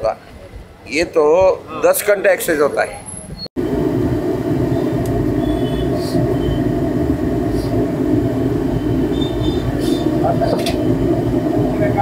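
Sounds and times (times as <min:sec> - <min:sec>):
kitchen roar: 0:03.6 - 0:12.0.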